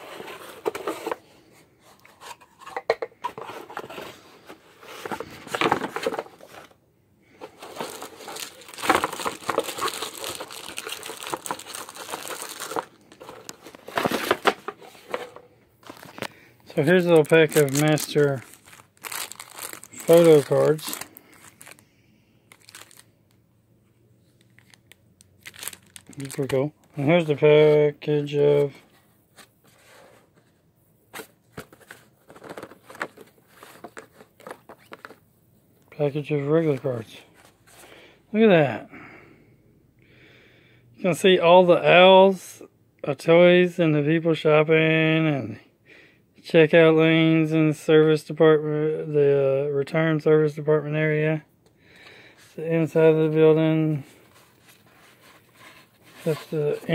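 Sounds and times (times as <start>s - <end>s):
cardboard rustling: 0.0s - 6.8s, 7.4s - 21.8s, 22.5s - 23.0s, 24.5s - 30.6s, 31.2s - 35.2s, 52.4s - 56.9s
plastic wrapping crinkling: 7.5s - 21.8s, 22.5s - 23.1s, 24.4s - 27.3s
plastic box clicks and crackles: 7.7s - 16.3s.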